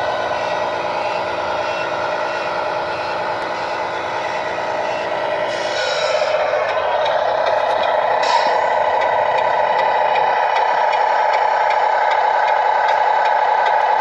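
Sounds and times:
diesel truck engine from small speaker: 0.0 - 14.0
hiss: 5.4 - 6.4.

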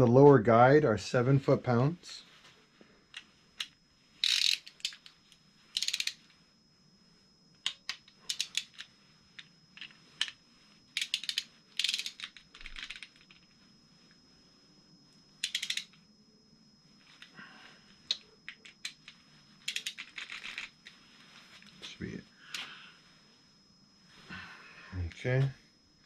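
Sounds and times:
hand ratchet clicking: 4.2 - 5.1, 5.8 - 6.2, 7.7 - 8.8, 11.0 - 13.1, 15.4 - 15.9, 19.7 - 20.7.

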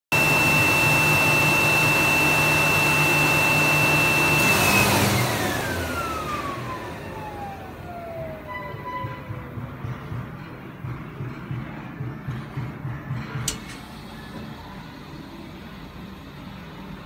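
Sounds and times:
air blower rushing and whining: 0.1 - 8.6.

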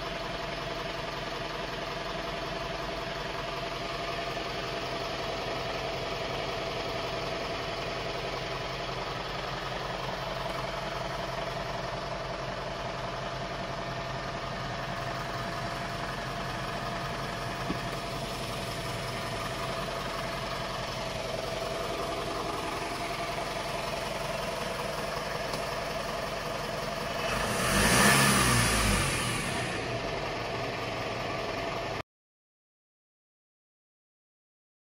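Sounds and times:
diesel engine idling: 0.0 - 32.0
engine revving: 27.1 - 31.1.

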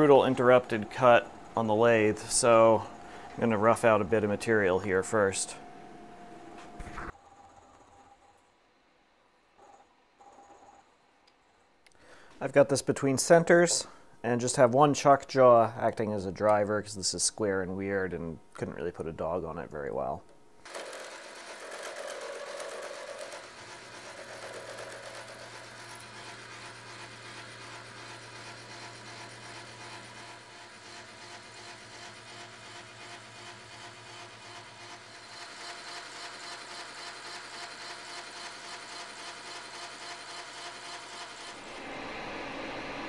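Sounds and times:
machine hum: 0.0 - 7.3, 41.3 - 43.0.

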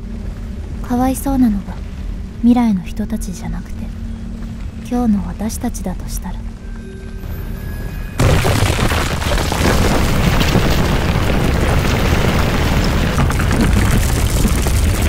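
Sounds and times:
explosive boom: 8.2 - 15.0
heavy rumble with crackling debris: 8.2 - 15.0.

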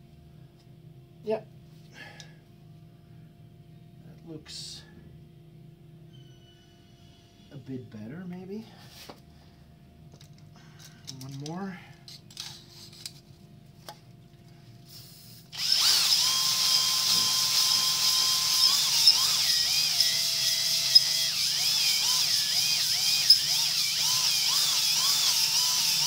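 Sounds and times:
electric drill whining: 15.5 - 26.0.

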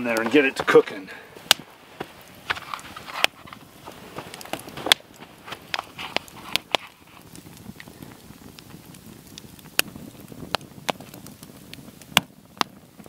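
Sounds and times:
campfire crackling: 0.0 - 13.0
sharp fire pops: 0.0 - 13.0.

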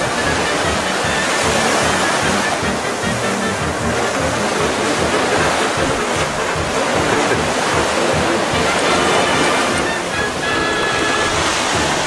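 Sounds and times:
surf hissing on shore: 0.0 - 12.0.

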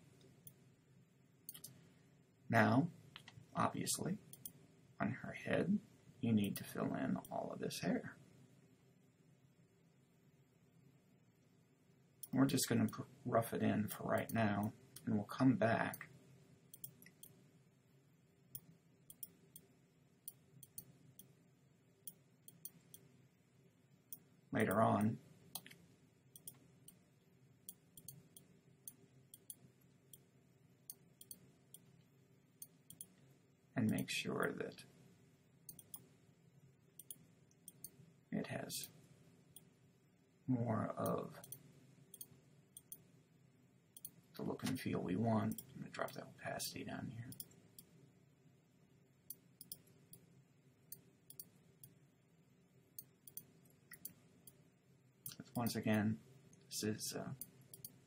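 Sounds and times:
computer mouse clicks: 1.5 - 1.8, 16.7 - 17.4, 18.5 - 19.7, 20.3 - 21.3, 25.6 - 25.8, 26.4 - 27.0, 27.7 - 30.2, 30.9 - 31.9, 32.6 - 33.2, 35.7 - 36.1, 37.0 - 38.0, 41.4 - 43.0, 44.0 - 44.8, 47.3 - 47.9, 49.3 - 50.2, 50.9 - 52.0, 53.0 - 54.6, 57.4 - 58.0.

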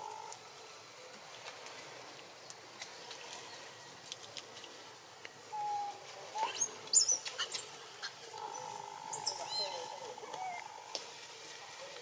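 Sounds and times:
faint clicks: 1.1 - 3.4.

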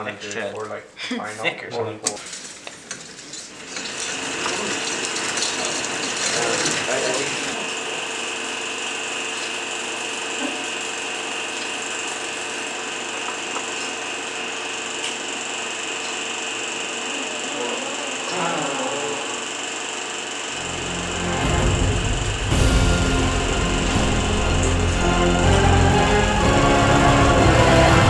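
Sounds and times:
film projector whirring: 2.0 - 28.0.

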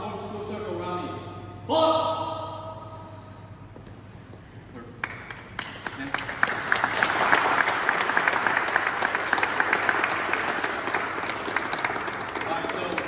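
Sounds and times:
group applauding: 4.9 - 13.0.

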